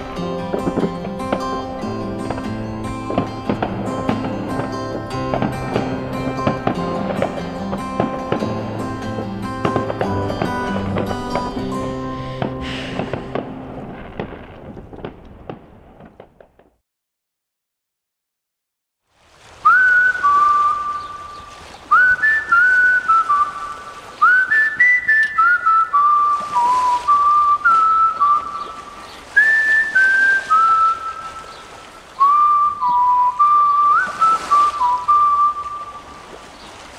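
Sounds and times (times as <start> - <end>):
soft hissy backing music: 0.0 - 12.5
whistled melody: 0.0 - 13.0, 19.6 - 36.2.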